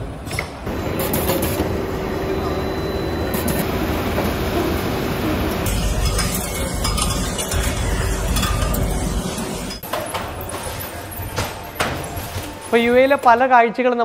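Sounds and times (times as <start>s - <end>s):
machinery hum and hiss: 0.0s - 11.0s
oven line rumble: 0.7s - 9.8s.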